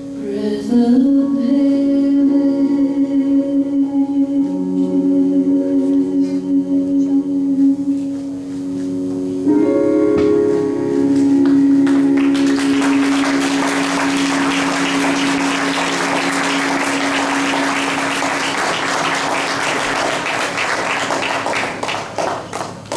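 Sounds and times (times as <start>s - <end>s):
sustained music note ringing: 9.4s - 19.6s
audience applauding: 11.8s - 22.9s.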